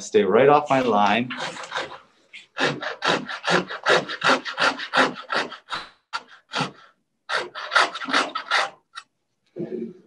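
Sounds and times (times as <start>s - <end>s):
coping saw cutting wood: 0.6s - 8.8s.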